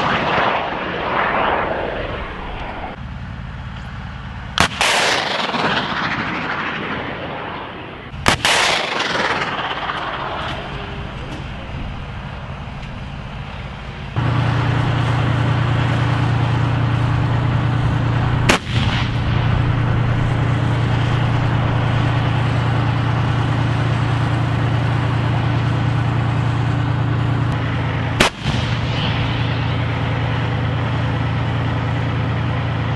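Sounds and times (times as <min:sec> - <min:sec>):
heavy gun blasts: 0:00.0 - 0:03.0, 0:04.6 - 0:12.4, 0:14.2 - 0:26.6, 0:27.2 - 0:31.8
tank engine running: 0:00.0 - 0:32.9.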